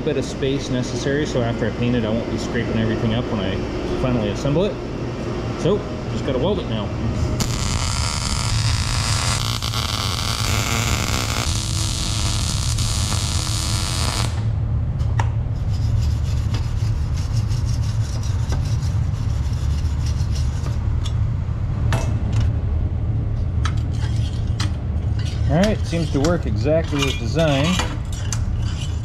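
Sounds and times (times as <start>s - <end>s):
steady low hum: 0.0s - 29.0s
welding arc crackling: 7.4s - 14.5s
wire brush scrubbing metal: 15.6s - 20.8s.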